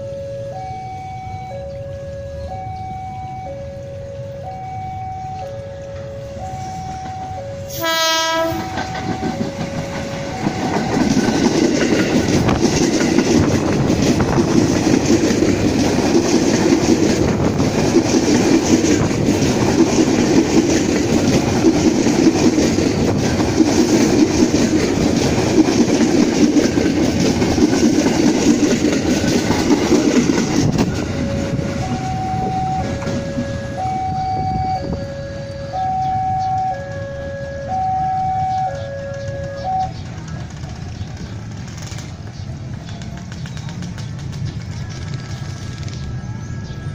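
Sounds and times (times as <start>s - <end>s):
two-note alternating tone: 0.0s - 11.5s, 30.7s - 40.0s
train horn: 5.5s - 11.3s, 30.9s - 40.0s
train wheels clattering over rail joints: 8.4s - 31.4s, 39.2s - 46.2s.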